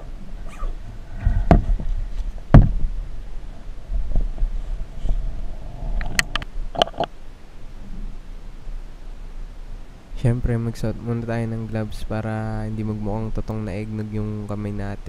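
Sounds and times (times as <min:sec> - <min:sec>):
low rumbling: 0:00.0 - 0:14.8
loud thump: 0:00.6 - 0:03.1.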